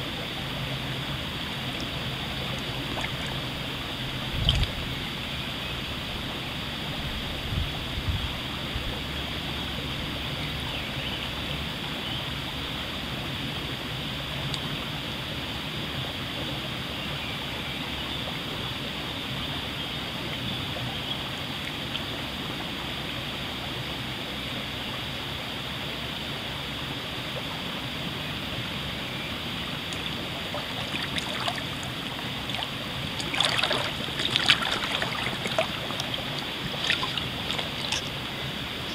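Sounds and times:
water sloshing from wading: 0.0 - 11.5, 28.6 - 38.9
stream running: 0.0 - 38.9.

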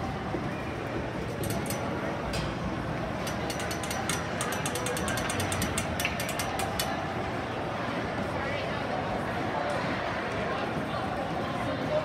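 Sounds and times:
arena background noise: 0.0 - 12.0
hockey sticks and puck clacking: 3.2 - 7.0.

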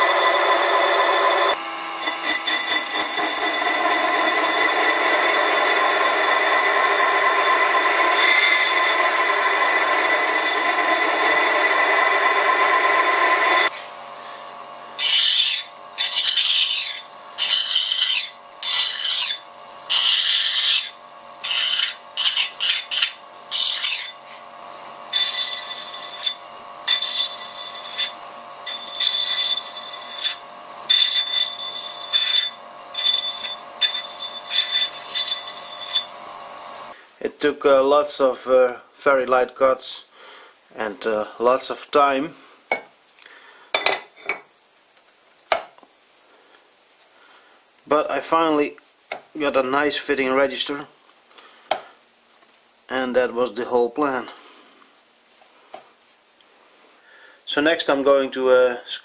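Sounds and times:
lathe cutting metal: 0.0 - 37.0
lathe whine: 0.0 - 37.0.

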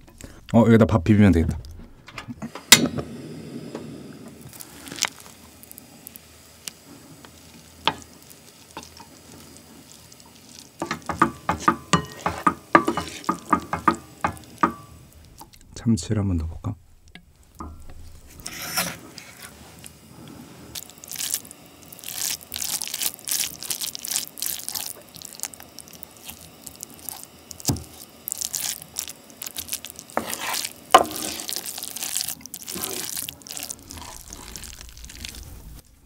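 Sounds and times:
wet sticky stirring: 9.8 - 15.6, 20.8 - 35.9
spoon knocking on pot: 10.8 - 15.0
spoon scraping pot: 10.8 - 15.5, 17.6 - 19.9, 30.0 - 31.8, 32.6 - 34.9.

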